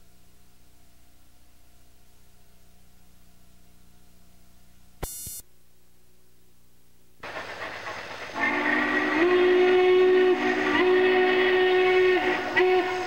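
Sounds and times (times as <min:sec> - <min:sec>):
train rushing: 0:07.2 - 0:13.0
steam locomotive whistle: 0:08.3 - 0:13.0.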